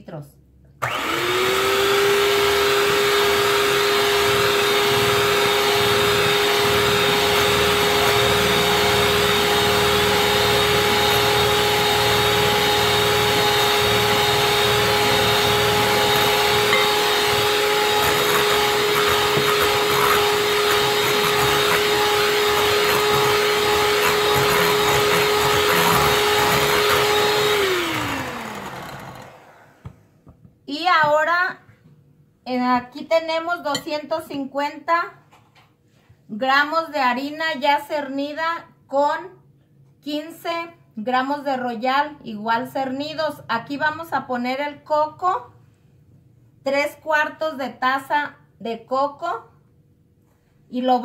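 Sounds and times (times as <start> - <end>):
electric hand mixer whirring: 0.8 - 30.0.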